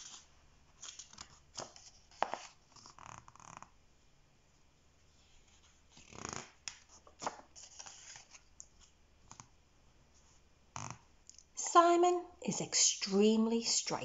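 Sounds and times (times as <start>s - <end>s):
paper page turning: 0.0s - 3.2s, 5.2s - 9.5s.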